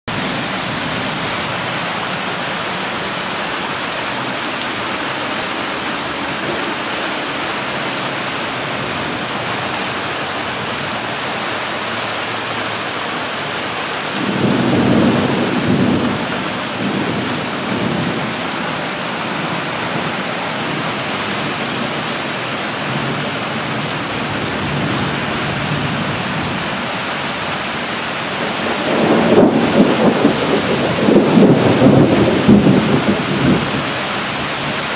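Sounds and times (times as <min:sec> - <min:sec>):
heavy rain pouring: 0:00.0 - 0:34.9.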